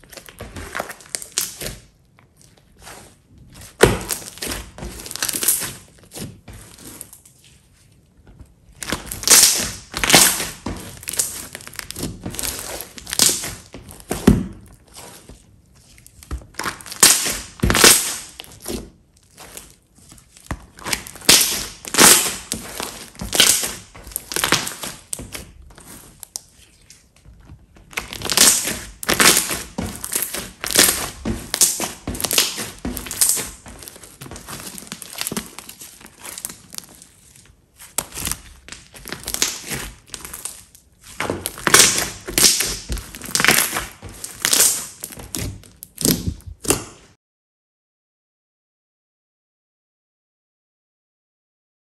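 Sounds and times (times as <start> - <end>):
slime squishing: 0.0 - 47.2.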